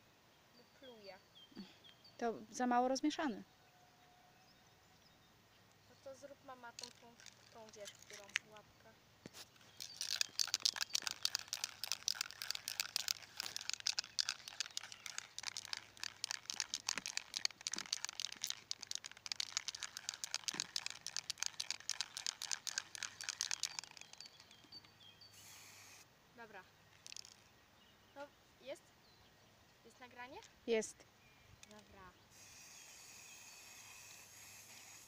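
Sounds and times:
spray can ball rattling: 0:06.6 - 0:08.5, 0:09.3 - 0:24.7, 0:27.0 - 0:27.4, 0:32.4 - 0:35.0.

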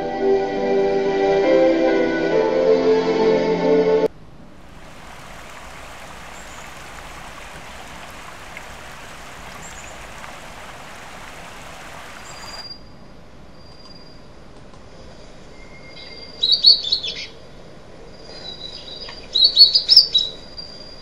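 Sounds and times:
quiet hiss: 0:04.1 - 0:12.7
stream rushing over rocks: 0:04.6 - 0:12.6
faint high chirps: 0:05.5 - 0:13.0.

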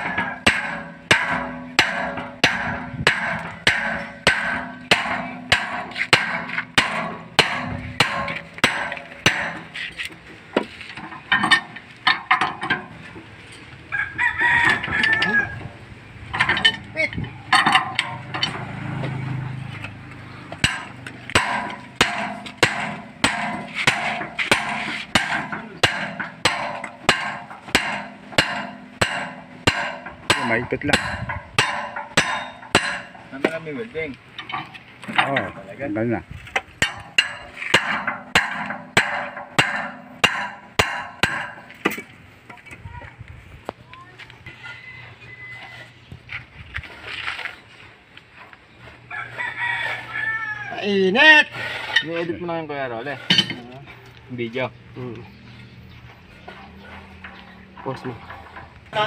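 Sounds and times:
rooster crowing: 0:13.9 - 0:15.8, 0:44.4 - 0:46.1, 0:49.1 - 0:50.9.

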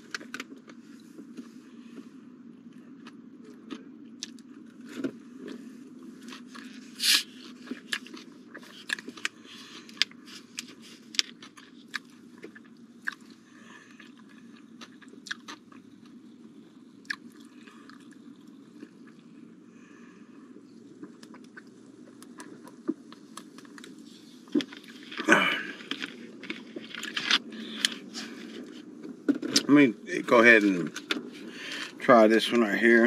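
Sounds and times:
low steady hum: 0:00.0 - 0:33.0
man chewing mouth sounds: 0:02.6 - 0:19.4, 0:20.5 - 0:29.7.

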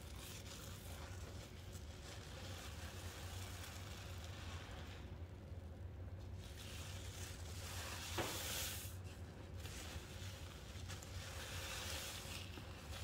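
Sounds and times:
crackling fizz: 0:00.0 - 0:13.0
soapy paste squished by hand: 0:00.0 - 0:13.0.

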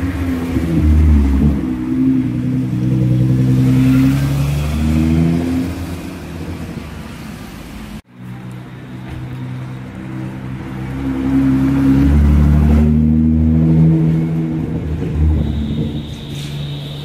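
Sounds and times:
car exhaust accelerating: 0:00.0 - 0:06.9.

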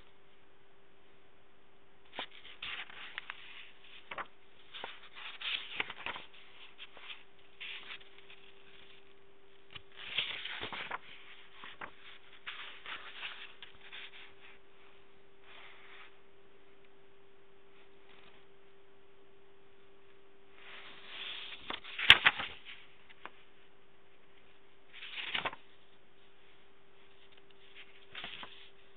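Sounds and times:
steady hum: 0:00.0 - 0:28.9
paper pages rustling: 0:02.1 - 0:14.7, 0:20.6 - 0:28.9.

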